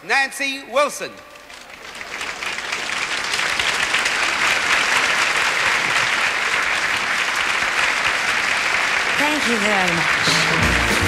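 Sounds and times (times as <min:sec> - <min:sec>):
audience applauding: 0:01.5 - 0:11.0.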